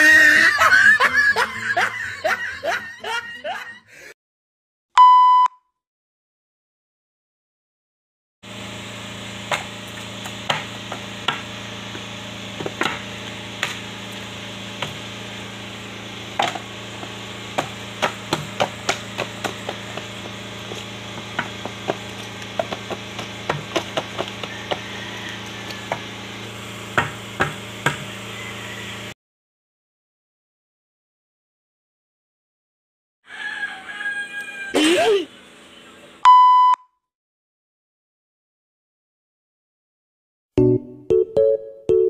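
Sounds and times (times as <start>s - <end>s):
taps and knocks on cardboard box: 22.6s - 24.9s.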